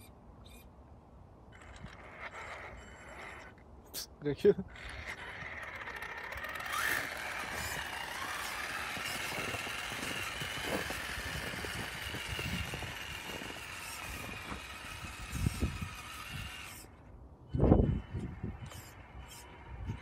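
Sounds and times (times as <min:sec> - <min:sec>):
toy truck electric motor whining: 0:01.5 - 0:03.6, 0:04.7 - 0:20.0
plow blade pushing snow: 0:05.0 - 0:16.9.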